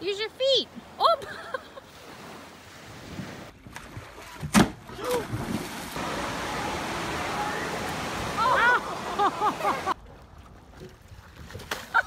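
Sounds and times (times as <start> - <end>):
rushing water: 2.0 - 12.0
person splashing into pool: 3.7 - 7.2.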